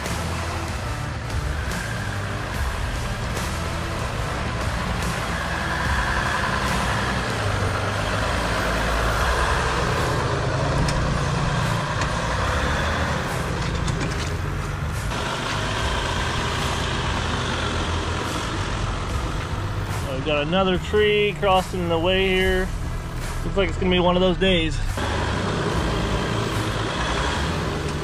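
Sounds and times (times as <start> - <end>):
diesel engine running at low revs: 0.0 - 28.0
knocks and clicks: 10.7 - 12.2, 13.5 - 15.7.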